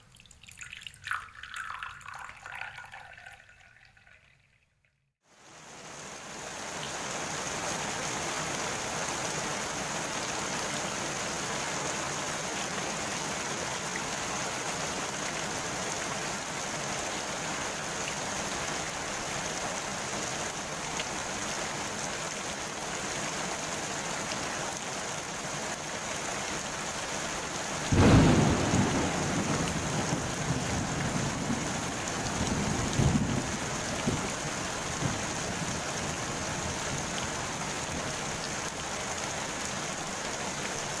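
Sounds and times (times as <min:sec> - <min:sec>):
rain pattering on pond: 0:00.0 - 0:04.6, 0:05.2 - 0:41.0
low rumble of thunder: 0:27.9 - 0:35.6.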